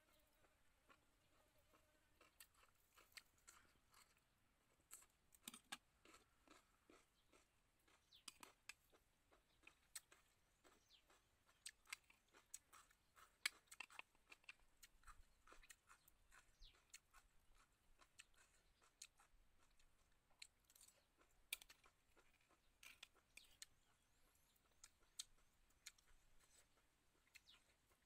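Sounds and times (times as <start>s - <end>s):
person chewing: 1.7s - 28.0s.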